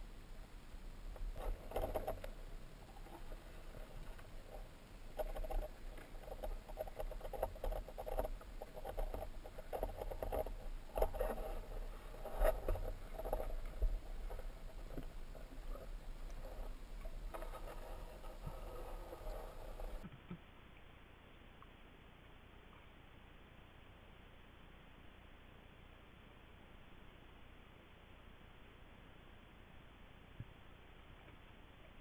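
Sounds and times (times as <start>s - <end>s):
underwater crackling and clicking: 1.0s - 20.4s.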